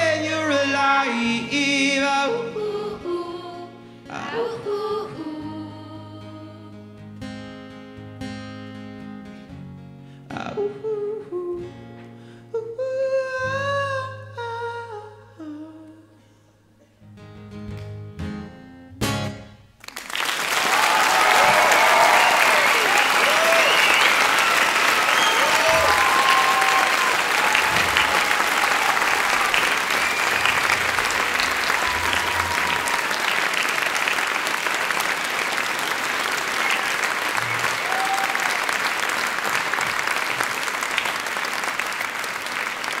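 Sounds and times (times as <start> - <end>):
large audience applauding: 19.8 - 43.0
cheering shouts and whistles: 20.6 - 34.5, 36.4 - 39.0.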